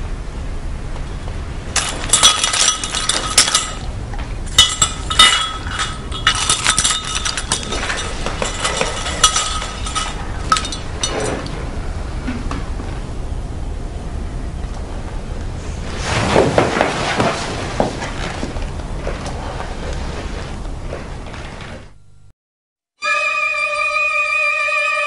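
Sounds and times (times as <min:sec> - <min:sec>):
keys jangling in glass bowl: 0:01.8 - 0:03.9, 0:04.5 - 0:11.2.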